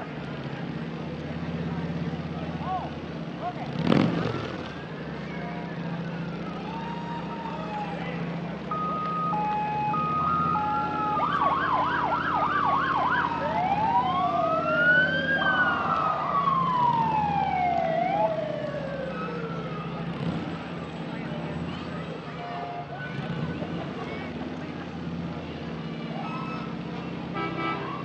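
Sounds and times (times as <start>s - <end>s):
truck engine running: 0.0s - 28.0s
fire engine sirens: 4.6s - 24.9s, 25.6s - 28.0s.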